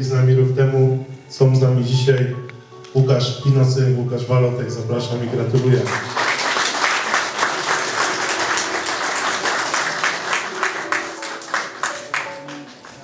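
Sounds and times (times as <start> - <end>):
audience clapping: 5.2 - 13.0.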